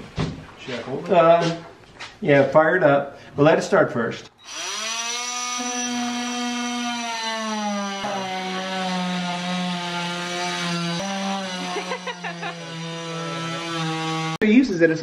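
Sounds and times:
oscillating multi-tool whine: 0:04.4 - 0:08.6.

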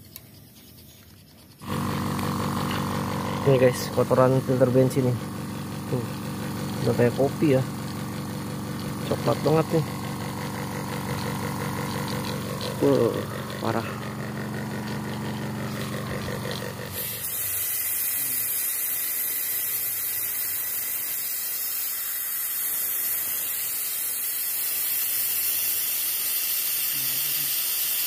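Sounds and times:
high hiss of pressurised spray: 0:16.3 - 0:28.0.

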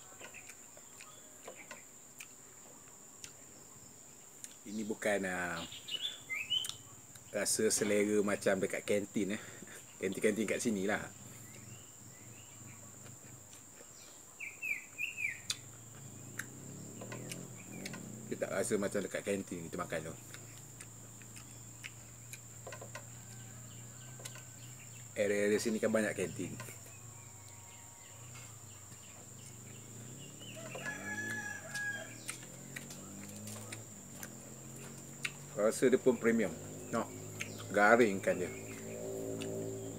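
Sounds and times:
small bird chirping: 0:00.0 - 0:39.9
steady background hiss: 0:00.0 - 0:39.9
rooster crowing: 0:22.8 - 0:25.2, 0:26.9 - 0:33.2
sharp clicks: 0:31.6 - 0:35.4.

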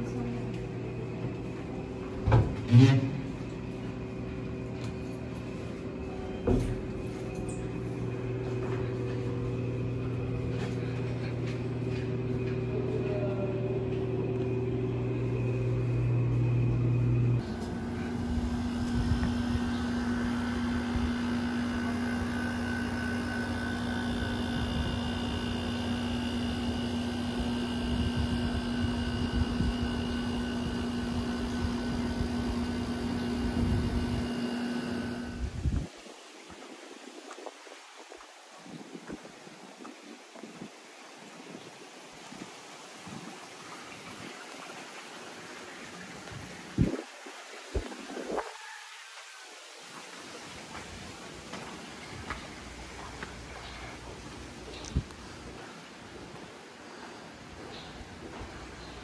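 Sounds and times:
hum with high whining tones: 0:00.0 - 0:35.9
machine hum: 0:00.0 - 0:35.9.

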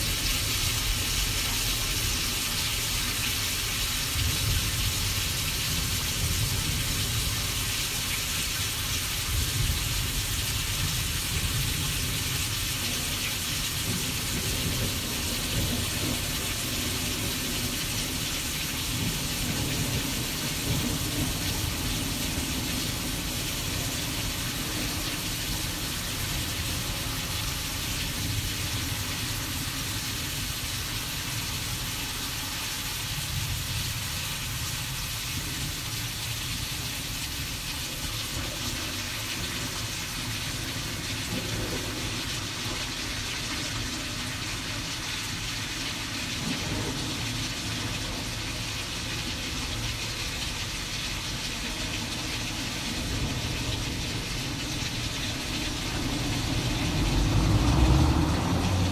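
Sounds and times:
rain-like hiss: 0:00.0 - 0:58.9.

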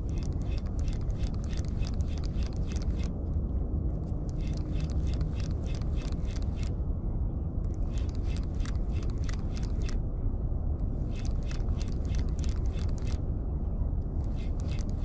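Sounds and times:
steady low rumble: 0:00.0 - 0:15.0
fishing reel clicking: 0:00.1 - 0:03.1, 0:04.3 - 0:06.7, 0:07.8 - 0:10.0, 0:14.3 - 0:15.0.

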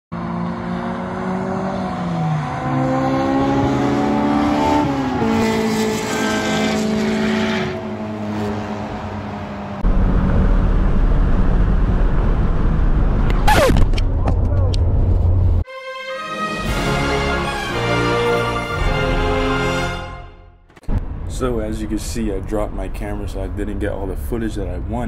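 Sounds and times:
car engine passing on track: 0:00.1 - 0:13.9
engine and road noise in cabin: 0:08.3 - 0:15.7.

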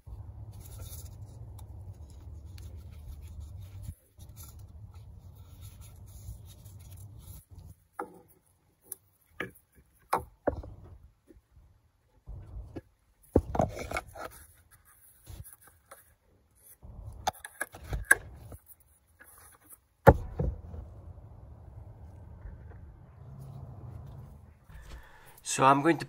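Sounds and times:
light rubbing of plastic cap: 0:00.1 - 0:10.0
low rumble: 0:20.5 - 0:25.2.

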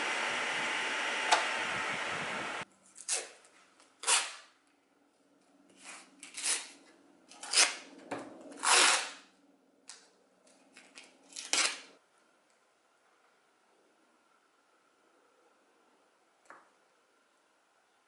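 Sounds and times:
masking tape ripping off roll: 0:04.0 - 0:04.5, 0:08.6 - 0:09.3, 0:11.4 - 0:11.9.

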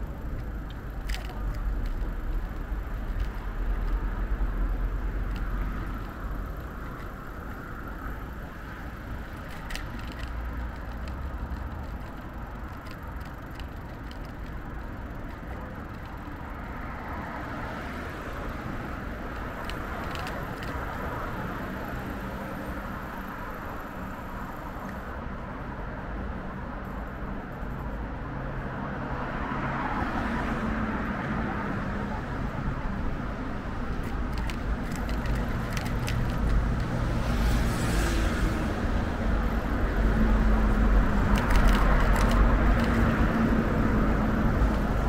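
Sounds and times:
cars going by: 0:00.0 - 0:45.0
faint clicks: 0:18.6 - 0:21.2, 0:34.0 - 0:37.6, 0:41.2 - 0:43.5.

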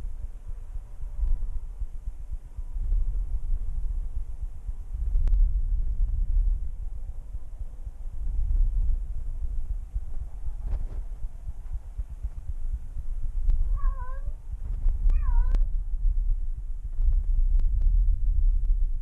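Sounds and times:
cat meowing: 0:13.7 - 0:14.4, 0:15.1 - 0:15.7.

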